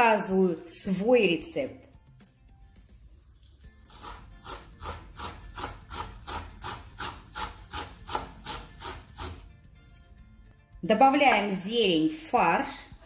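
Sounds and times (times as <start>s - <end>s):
knife chopping on wooden board: 3.8s - 9.5s.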